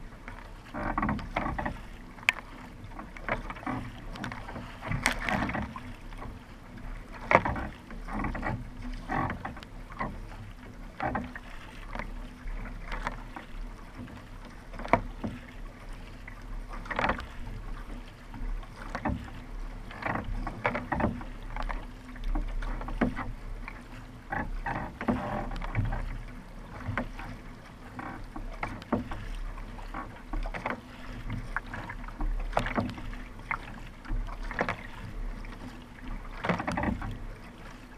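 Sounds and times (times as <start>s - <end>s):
kayak paddle splashing in water: 0.0s - 37.9s
low rumble of water: 0.0s - 37.9s
wind: 0.0s - 37.9s.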